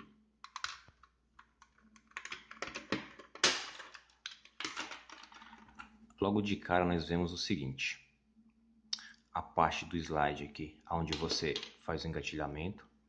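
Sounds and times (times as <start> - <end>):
plastic clicks and rattles: 0.0 - 5.9.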